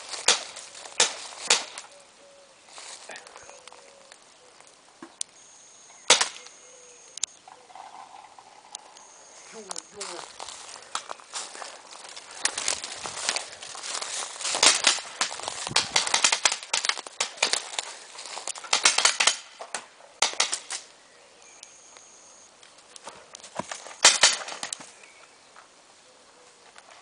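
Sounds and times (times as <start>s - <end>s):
branch cracking sharply: 0.0s - 2.0s, 6.1s - 6.5s, 12.2s - 20.9s, 23.4s - 25.0s
shrub branches crackling and rustling: 0.0s - 27.0s.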